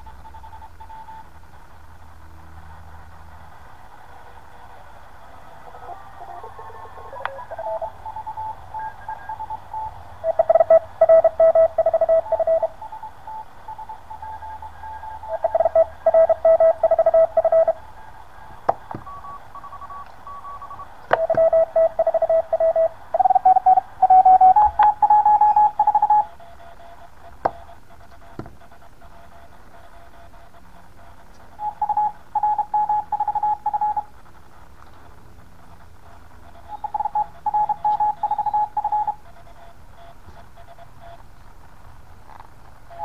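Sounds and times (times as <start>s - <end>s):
morse code beeps: 0.0s - 1.3s, 6.9s - 34.1s, 36.0s - 41.2s
radio band hiss: 0.0s - 43.0s.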